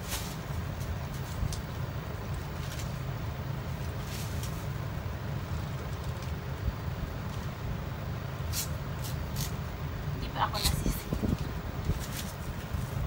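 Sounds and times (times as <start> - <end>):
low background rumble: 0.0 - 13.0
masking tape pulled from roll: 8.5 - 9.6.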